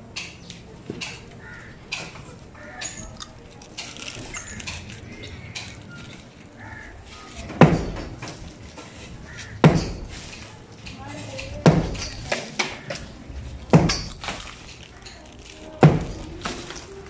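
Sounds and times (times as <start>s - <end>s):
sledgehammer striking concrete wall: 7.6s - 8.2s, 9.6s - 10.3s, 11.6s - 12.4s, 13.7s - 14.4s, 15.8s - 16.6s.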